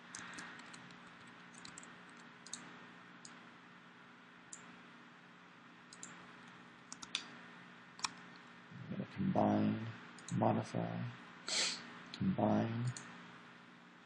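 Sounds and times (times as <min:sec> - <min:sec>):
low steady hum: 0:00.0 - 0:14.0
computer mouse clicks: 0:00.1 - 0:03.4, 0:05.9 - 0:06.2, 0:06.9 - 0:07.3, 0:08.0 - 0:08.4.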